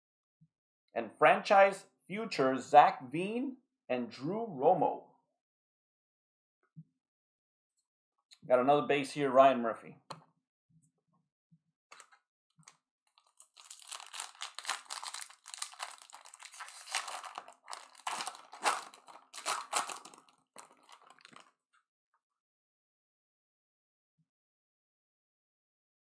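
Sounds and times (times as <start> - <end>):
foil wrapper tearing and crinkling: 11.9 - 21.5.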